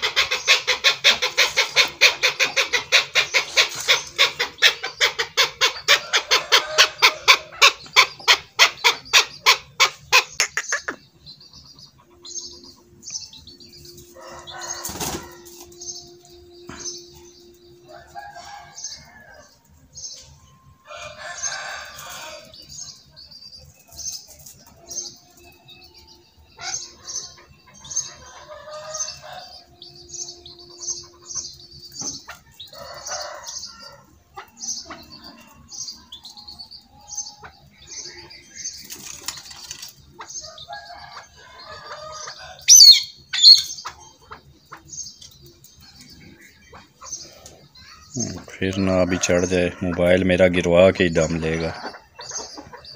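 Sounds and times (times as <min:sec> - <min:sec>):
soft clucks: 0:00.0 - 0:12.3
partridge calling chuk notes: 0:00.0 - 0:52.9.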